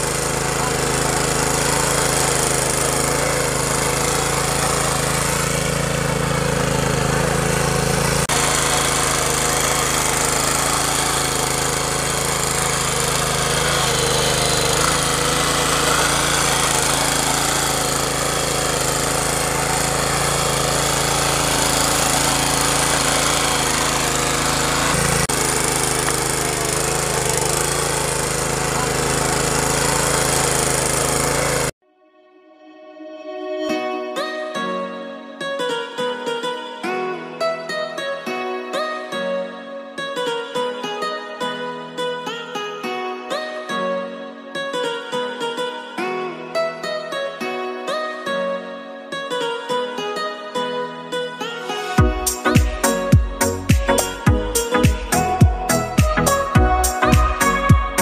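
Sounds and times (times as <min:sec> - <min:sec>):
small petrol engine running: 0:00.0 - 0:31.8, 0:51.9 - 0:58.0
tiller working through dry soil: 0:00.0 - 0:31.8, 0:51.6 - 0:58.0.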